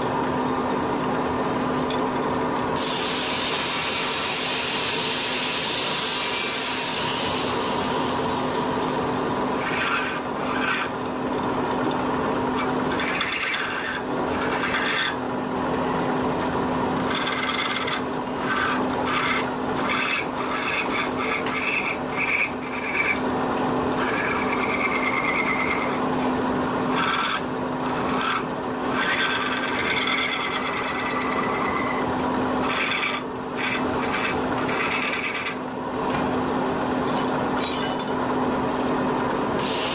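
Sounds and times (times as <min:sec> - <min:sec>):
angle grinder sharpening steel: 0:09.5 - 0:10.9, 0:12.6 - 0:15.2, 0:17.0 - 0:23.2, 0:26.6 - 0:32.0, 0:32.6 - 0:35.6
chisel scraping spinning wood: 0:09.5 - 0:11.1, 0:12.6 - 0:15.2, 0:17.0 - 0:23.2, 0:23.9 - 0:26.0, 0:26.6 - 0:35.6
wood lathe humming: 0:12.8 - 0:15.2, 0:17.0 - 0:23.2, 0:23.9 - 0:26.0, 0:26.6 - 0:35.6.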